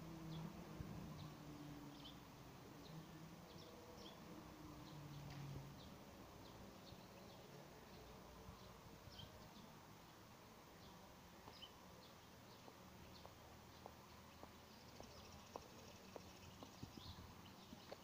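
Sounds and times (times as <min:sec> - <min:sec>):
bird chirps: 0:10.8 - 0:18.0.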